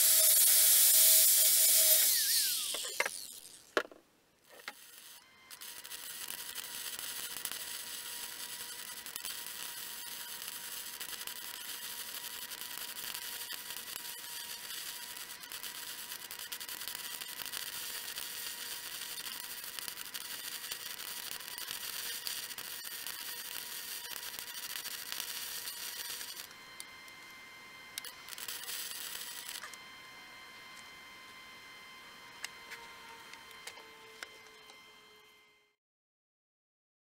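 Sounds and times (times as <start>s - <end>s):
welding arc crackling hiss: 0.0s - 3.8s, 4.5s - 29.8s.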